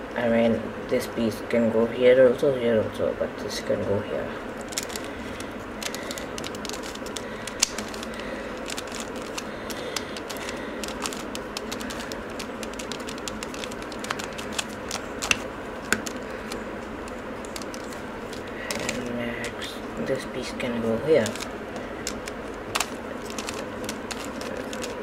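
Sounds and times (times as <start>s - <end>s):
steady low hiss: 0.0s - 25.0s
plastic puzzle cube clicking: 5.8s - 16.6s, 21.2s - 25.0s.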